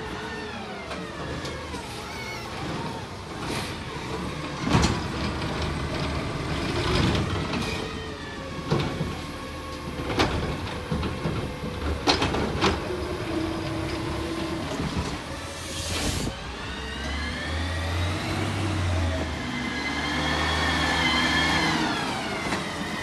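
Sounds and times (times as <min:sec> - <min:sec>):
garbage truck running: 0:00.0 - 0:23.0
hydraulic arm whine: 0:12.8 - 0:23.0.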